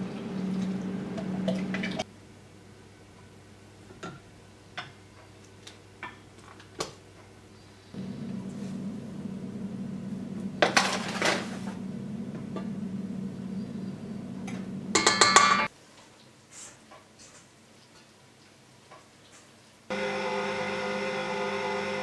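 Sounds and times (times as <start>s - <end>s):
stand mixer motor humming: 19.9s - 22.0s.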